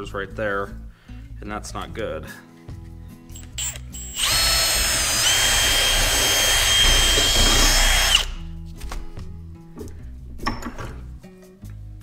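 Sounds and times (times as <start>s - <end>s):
drill motor whine: 3.6s - 8.4s.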